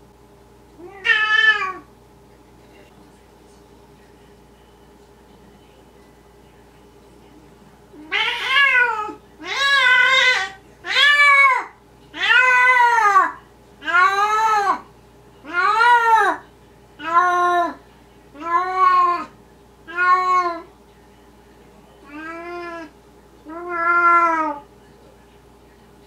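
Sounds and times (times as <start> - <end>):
cat meowing: 0.8 - 1.9, 8.0 - 14.8, 15.4 - 16.4, 18.4 - 19.3, 19.9 - 20.7, 22.1 - 22.9, 23.5 - 24.6.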